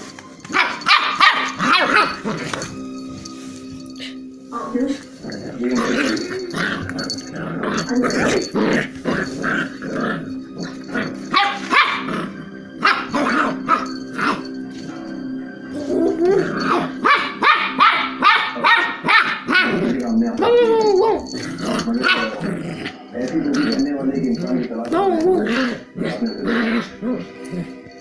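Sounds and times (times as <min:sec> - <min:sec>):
dog barking: 0:00.5 - 0:02.4, 0:11.3 - 0:12.2, 0:12.8 - 0:14.4, 0:16.7 - 0:19.8, 0:22.0 - 0:22.4.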